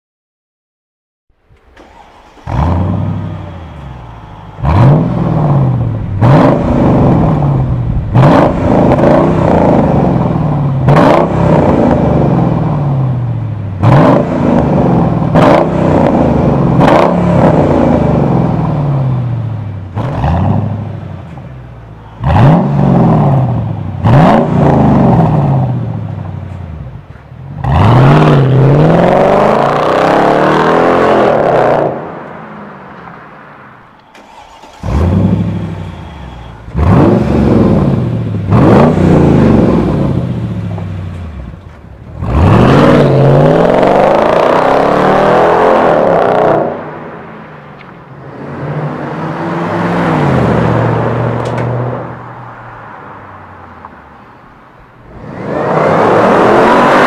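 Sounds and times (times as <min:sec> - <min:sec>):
car engine idling and revving: 0:01.4 - 0:57.0
car pulling away hard: 0:01.6 - 0:32.2, 0:34.2 - 0:47.2, 0:55.0 - 0:57.0.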